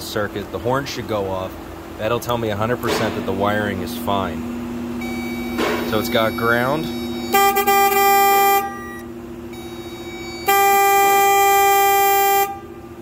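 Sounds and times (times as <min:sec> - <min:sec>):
car horn blasts: 0:05.0 - 0:13.0.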